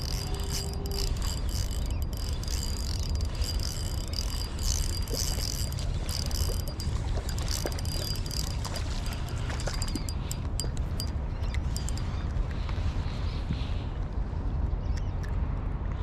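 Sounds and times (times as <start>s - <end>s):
thin high-pitched whine: 0.0s - 12.1s
wind rumbling on microphone: 0.0s - 16.0s.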